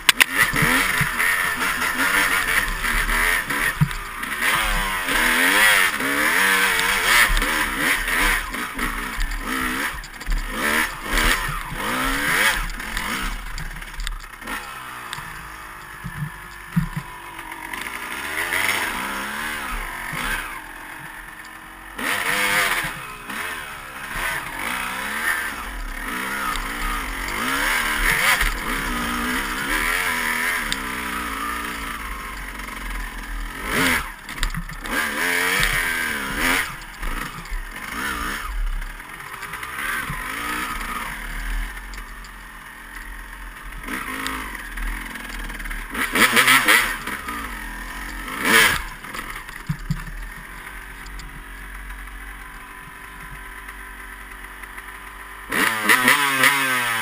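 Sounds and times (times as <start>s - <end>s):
bike knocks and rattles: 0.0s - 17.9s, 24.1s - 41.0s, 43.6s - 51.5s
dirt bike engine revving: 0.0s - 57.0s.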